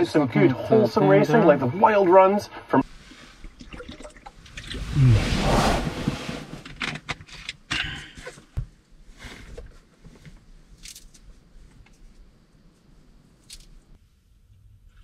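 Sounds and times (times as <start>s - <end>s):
knocks and scrapes: 4.8s - 7.4s
rustle and clatter: 6.0s - 14.0s.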